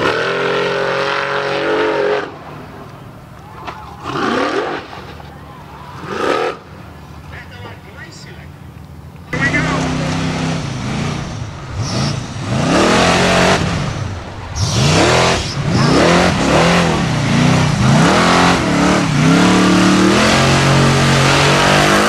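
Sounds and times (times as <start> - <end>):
buggy engine revving hard: 0.0 - 2.7, 4.0 - 5.1, 5.9 - 6.7, 9.4 - 22.0
wheels spinning in dirt: 0.0 - 7.6, 9.2 - 22.0.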